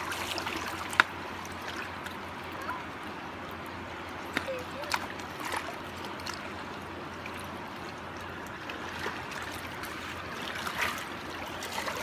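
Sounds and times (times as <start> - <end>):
water swishing in a pan: 0.0 - 2.8, 4.5 - 12.0
small splashes: 0.0 - 3.0, 4.2 - 12.0
running water: 0.0 - 12.0.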